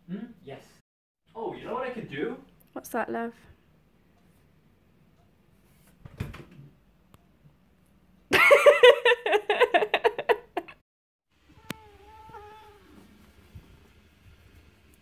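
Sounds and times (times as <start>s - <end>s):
person giggling: 8.3s - 10.8s.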